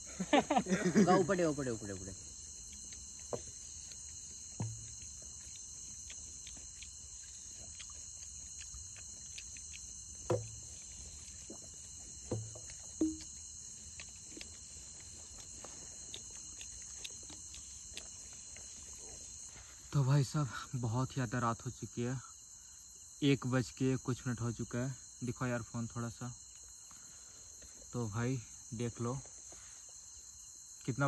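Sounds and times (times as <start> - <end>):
crickets chirping: 0.0 - 31.0
faint ticks: 1.9 - 19.3.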